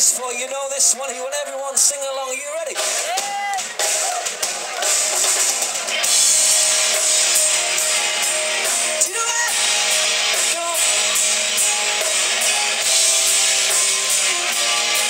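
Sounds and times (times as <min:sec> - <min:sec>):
live rock band playing: 0:02.8 - 0:15.0
electric guitar: 0:04.8 - 0:15.0.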